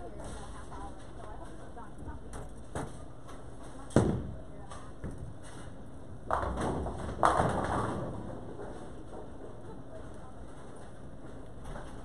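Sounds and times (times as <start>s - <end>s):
bowling pins crashing: 6.3s - 8.8s.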